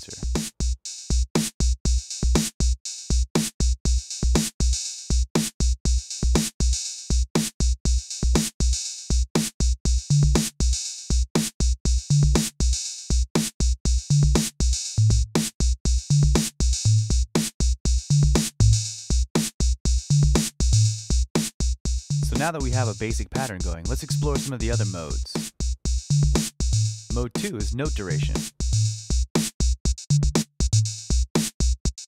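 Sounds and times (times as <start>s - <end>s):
electronic drum machine beat: 0.0s - 0.6s, 14.0s - 32.0s
deep pitched drum note: 22.2s - 22.9s.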